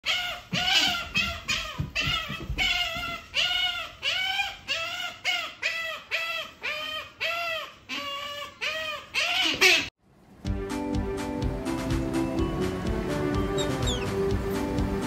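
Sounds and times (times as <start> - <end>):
otter squeaky calls: 0.1 - 9.9, 13.5 - 14.2.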